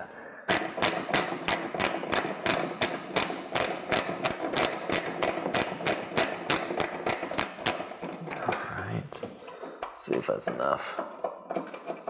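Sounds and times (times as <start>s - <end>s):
ratchet wrench clicking: 0.5s - 8.0s.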